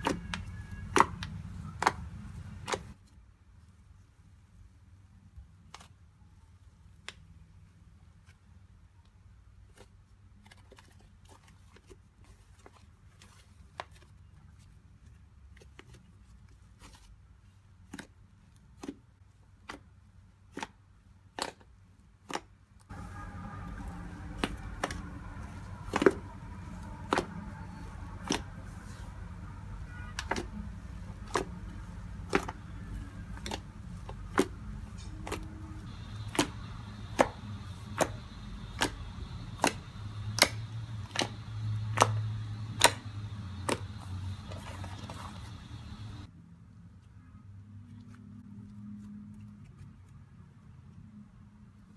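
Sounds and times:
slime popping and clicking: 36.0 - 43.9.

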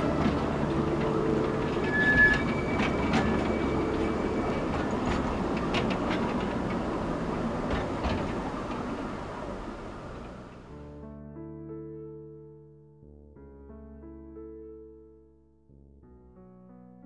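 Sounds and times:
high wheel squeal: 0.0 - 6.4
train wheels clicking over rails: 0.0 - 10.6.

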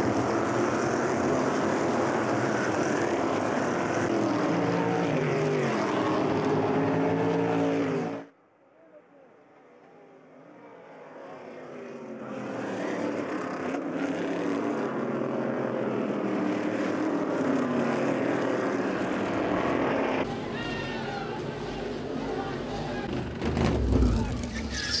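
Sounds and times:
race cars passing: 0.0 - 8.3, 9.4 - 25.0.

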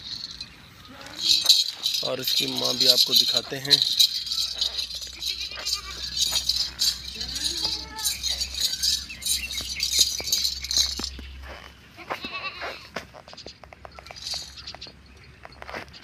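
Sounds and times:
jangling rattling noise: 0.0 - 11.3, 14.0 - 14.8
goat bleating: 5.1 - 6.4, 12.0 - 12.9.

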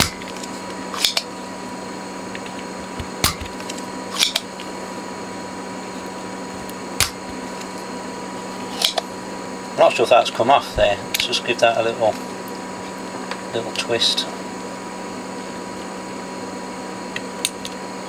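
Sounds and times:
desoldering pump snapping: 0.0 - 1.3, 2.3 - 4.7, 6.0 - 7.8, 8.7 - 9.1
steady low hum: 0.0 - 18.0.

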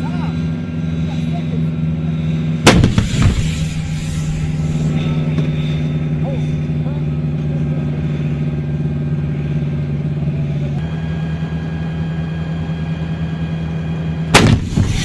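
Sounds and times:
diesel engine running: 0.0 - 15.0
gun firing bang: 2.6 - 5.6, 14.4 - 15.0.

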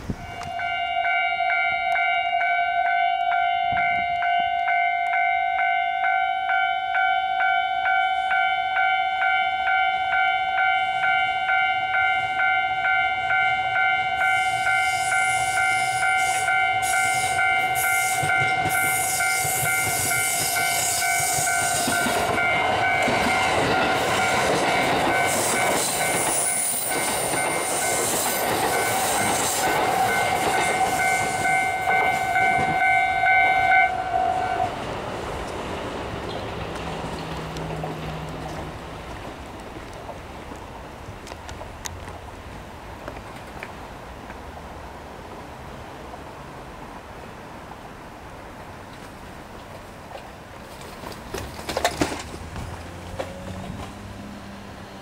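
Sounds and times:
train wheels running on rails: 0.0 - 44.4, 48.9 - 55.0
level crossing warning bell: 0.2 - 34.7
train wheel squeal: 14.2 - 34.7.

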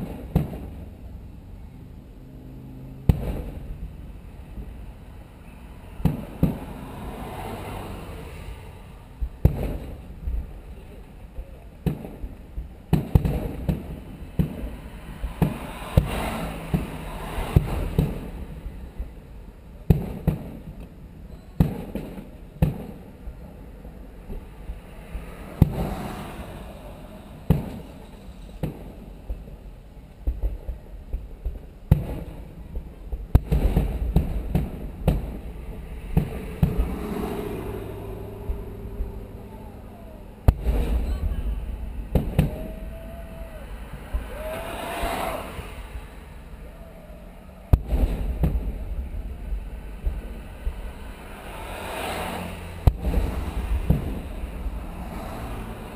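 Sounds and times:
fireworks booming: 0.0 - 1.3, 3.0 - 55.9
rumbling echo: 22.9 - 51.8, 52.4 - 55.9.

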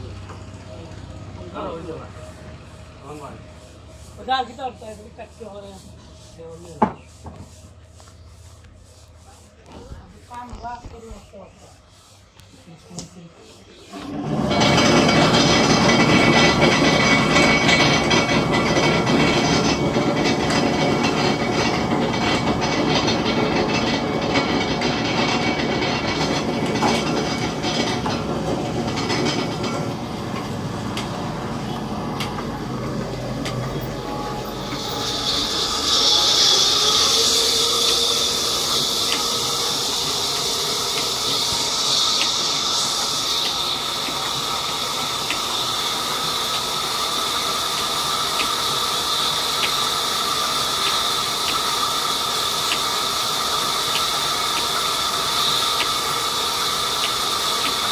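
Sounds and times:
band saw humming and rattling: 13.9 - 57.9
blade hissing through wood: 33.5 - 57.9.

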